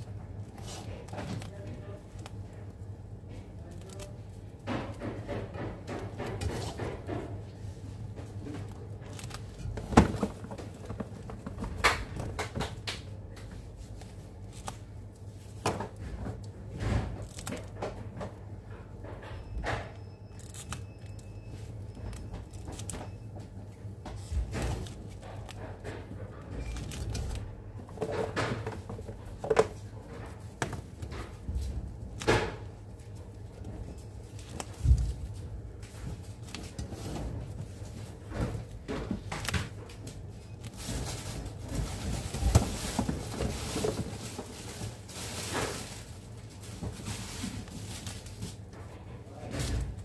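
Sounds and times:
low room hum: 0:00.0 - 0:50.0
plastic wrap crinkling: 0:39.2 - 0:48.8.

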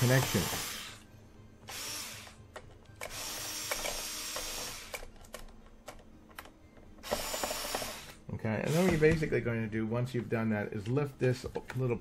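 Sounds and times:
cordless screwdriver running: 0:00.0 - 0:01.0, 0:01.7 - 0:02.4, 0:03.0 - 0:05.0, 0:07.0 - 0:09.2.

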